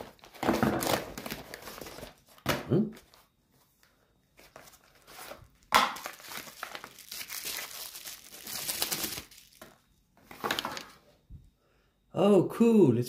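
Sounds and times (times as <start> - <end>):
packaging crinkling and rustling: 0.0 - 2.4, 4.4 - 11.0.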